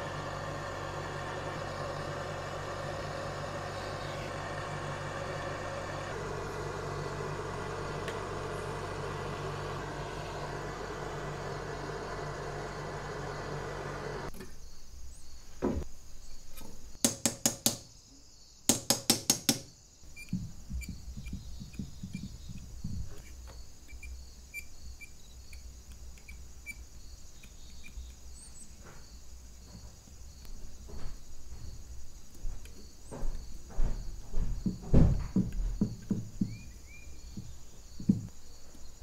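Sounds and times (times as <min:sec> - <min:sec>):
tool knocking and clicking on wood: 0:17.0 - 0:17.9, 0:18.7 - 0:23.6, 0:32.5 - 0:38.4.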